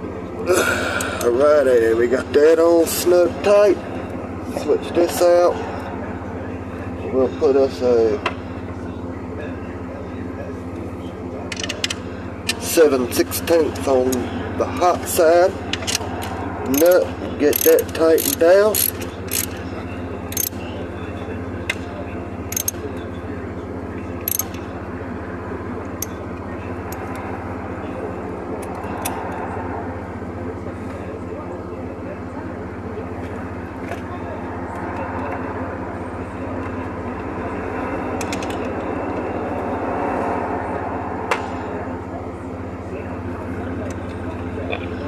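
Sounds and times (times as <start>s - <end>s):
steady low drone: 0.0s - 45.0s
ratchet wrench clicks: 16.7s - 19.6s, 20.3s - 20.6s, 22.5s - 22.8s, 24.2s - 24.6s.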